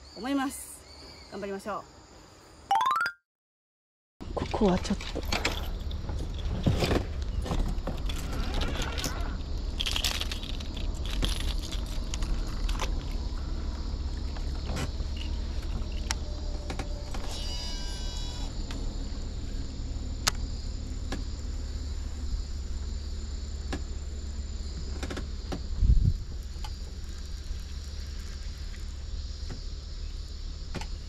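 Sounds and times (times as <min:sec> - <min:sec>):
fishing reel braking whine: 0:17.0 - 0:18.8.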